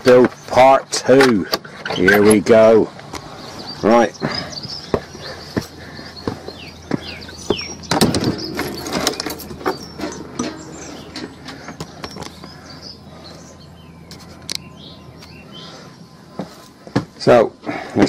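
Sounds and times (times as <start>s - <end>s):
small birds chirping: 0.0s - 18.0s
footsteps on concrete steps: 2.3s - 13.5s, 15.4s - 18.0s
door opening clatter: 7.5s - 12.6s.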